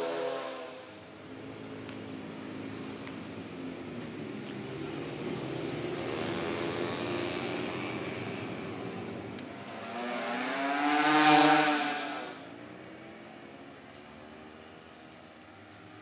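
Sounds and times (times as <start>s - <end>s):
vehicle engine passing: 2.0s - 13.1s.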